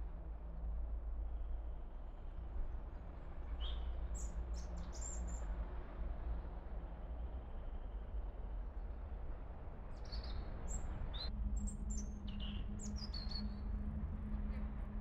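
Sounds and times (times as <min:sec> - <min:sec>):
small songbirds chirping: 0:03.4 - 0:05.5, 0:10.0 - 0:13.7
steady low rumble: 0:11.2 - 0:15.0.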